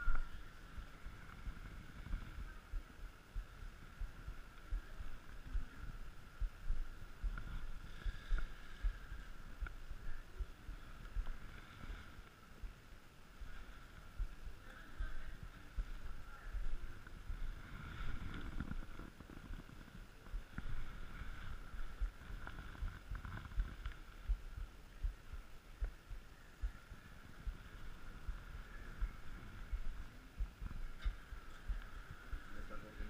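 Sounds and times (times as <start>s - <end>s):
faint steady high hum: 0.0s - 33.0s.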